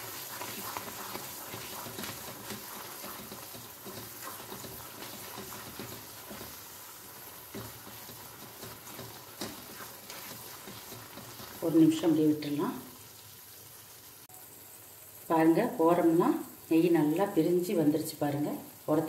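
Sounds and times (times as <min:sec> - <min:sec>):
spatula scraping pan: 0:00.0 - 0:11.7
halwa sizzling in pan: 0:00.0 - 0:19.0.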